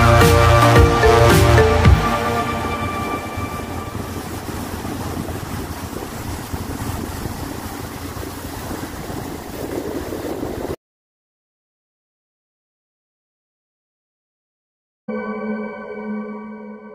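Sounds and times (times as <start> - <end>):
outboard motor running: 0.0 - 10.8
water noise: 0.0 - 10.8
wind: 0.0 - 10.8.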